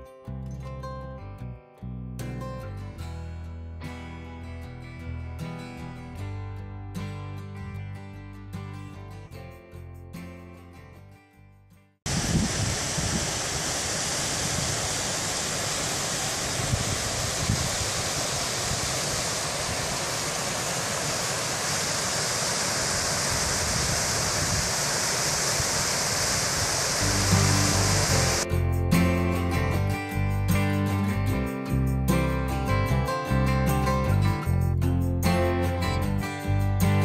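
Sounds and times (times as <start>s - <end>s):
guitar music: 0.0s - 11.5s, 27.0s - 37.0s
water rushing over rocks: 12.1s - 28.4s.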